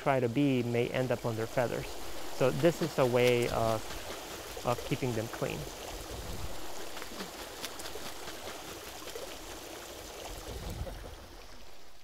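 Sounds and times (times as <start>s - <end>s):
water dripping: 0.0s - 11.6s
bird wings splashing in water: 2.0s - 11.1s.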